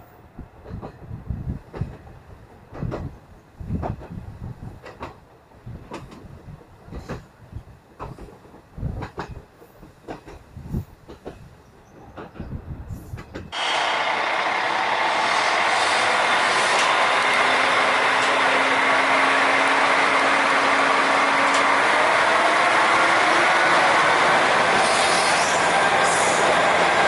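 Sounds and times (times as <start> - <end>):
train wheel and running noise: 0.0 - 27.0
train running gear clacking: 0.6 - 27.0.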